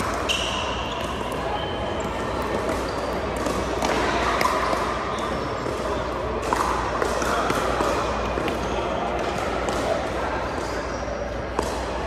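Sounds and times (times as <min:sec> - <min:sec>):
voices in a gym: 0:00.0 - 0:12.0.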